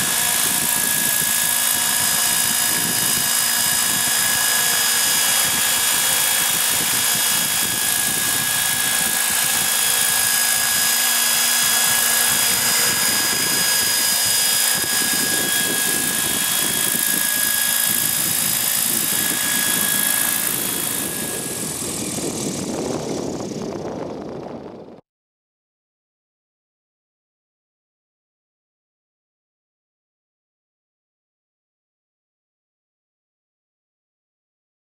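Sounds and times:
model helicopter motor whine: 0:00.0 - 0:25.0
rotor blades rushing: 0:00.0 - 0:25.0.

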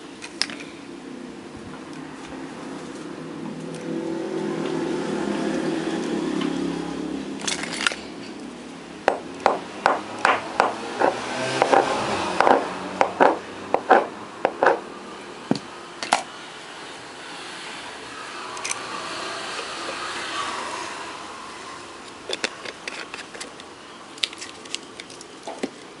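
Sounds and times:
small hard objects clicking: 0:22.3 - 0:25.9.

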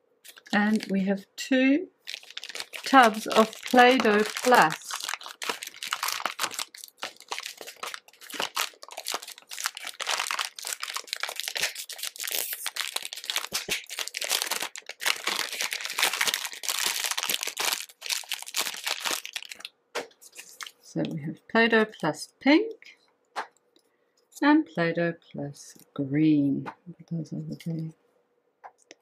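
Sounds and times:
plastic film crinkling: 0:00.2 - 0:01.1, 0:02.0 - 0:20.8.

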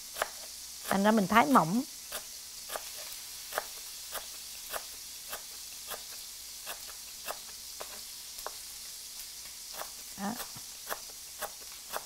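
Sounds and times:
pork sizzling in hot oil: 0:00.0 - 0:12.0
knife slicing on cutting board: 0:02.1 - 0:08.6, 0:09.7 - 0:12.0.

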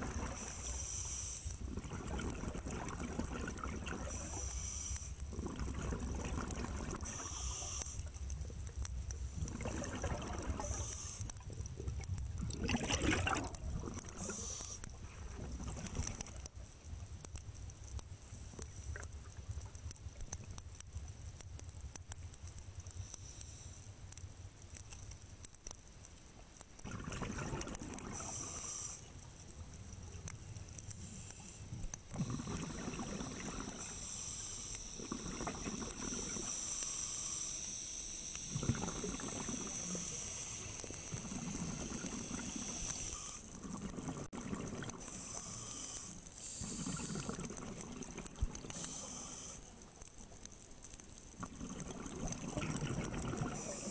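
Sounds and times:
bubbles gurgling with hiss: 0:00.0 - 0:16.6, 0:26.8 - 0:29.2, 0:30.9 - 0:37.6, 0:38.2 - 0:50.0, 0:51.2 - 0:53.9.

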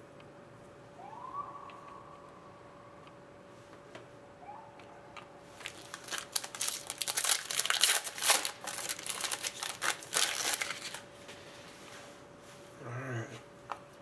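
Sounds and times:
cards sliding out of wrapper: 0:05.6 - 0:11.0
foil pack crinkling and tearing: 0:05.6 - 0:11.1.

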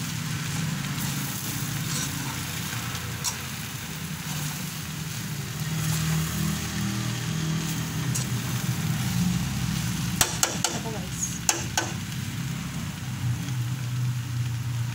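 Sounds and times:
noodles sizzling in a wok: 0:00.0 - 0:14.9
metal spatula knocking a pan: 0:10.2 - 0:10.8, 0:11.4 - 0:12.0.

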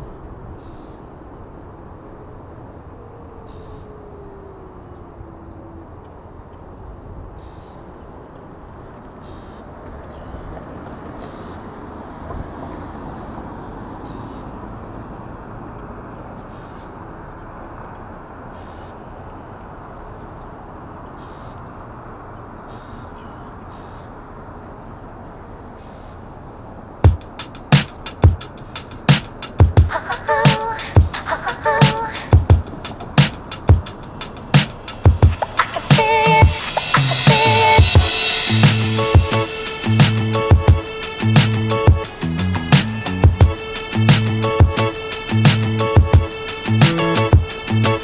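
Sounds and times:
wind and road noise: 0:00.0 - 0:48.0
falling whine: 0:27.0 - 0:48.0.

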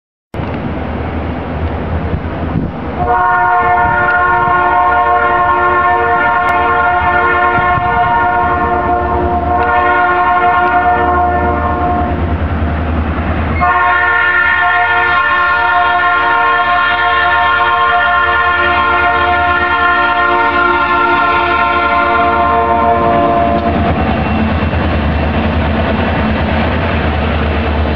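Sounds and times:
low steady train rumble: 0:00.3 - 0:27.9
locomotive horn blasts: 0:03.0 - 0:12.3, 0:13.6 - 0:24.0.

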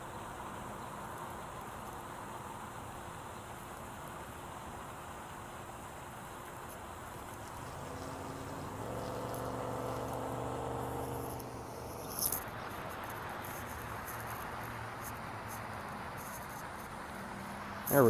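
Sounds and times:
distant engine hum: 0:05.9 - 0:18.0
faint high ticks: 0:06.7 - 0:10.4, 0:11.0 - 0:16.9
sharp crackle: 0:07.2 - 0:15.6.

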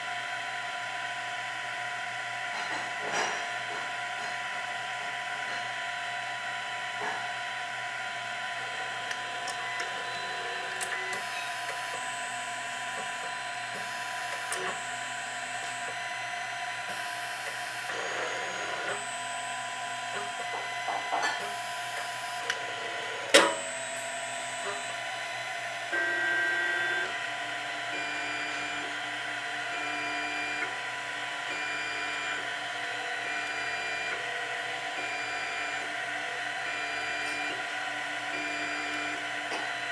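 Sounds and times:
cooling fan whirring: 0:00.0 - 0:39.9
stepper motors whining: 0:08.1 - 0:39.9.

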